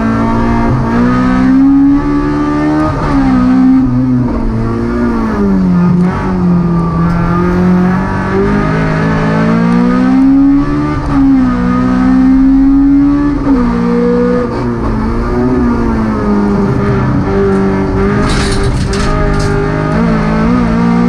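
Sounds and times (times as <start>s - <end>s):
car engine at high revs: 0.0s - 21.0s.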